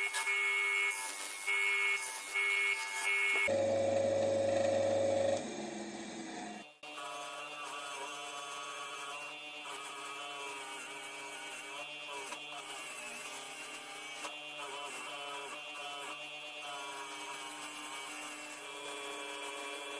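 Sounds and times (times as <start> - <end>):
bench grinder motor whining: 0.0 - 6.8.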